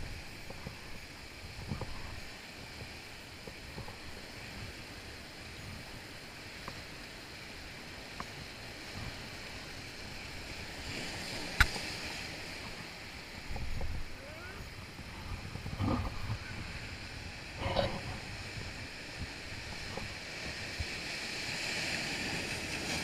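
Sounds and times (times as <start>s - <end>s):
surf breaking over rocks: 6.5s - 23.0s.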